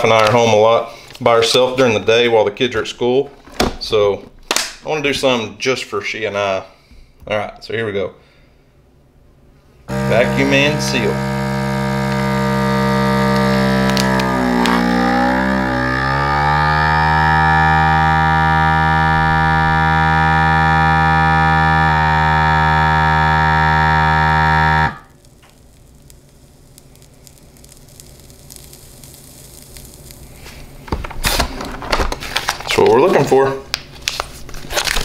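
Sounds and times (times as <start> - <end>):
vacuum sealer pump humming: 9.9 - 25.2.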